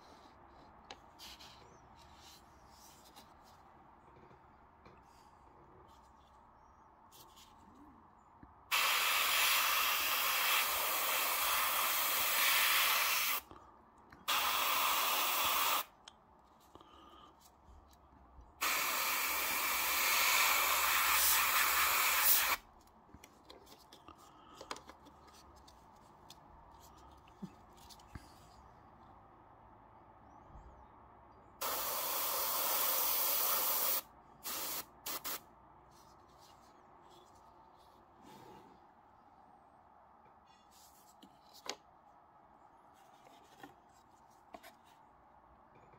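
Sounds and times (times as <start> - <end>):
airbrush spraying hiss: 8.7 - 13.4, 14.3 - 15.9, 18.6 - 22.6, 31.6 - 35.4.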